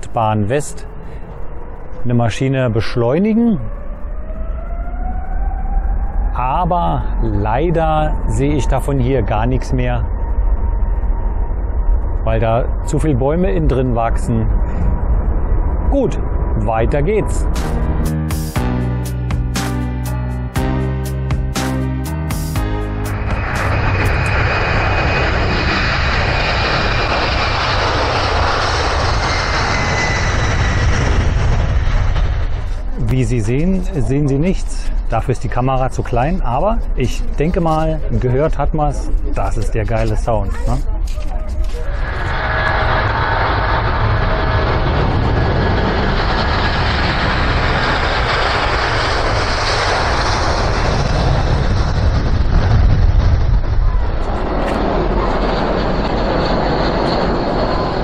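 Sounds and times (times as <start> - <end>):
jet airliner passing overhead: 0.0 - 58.0.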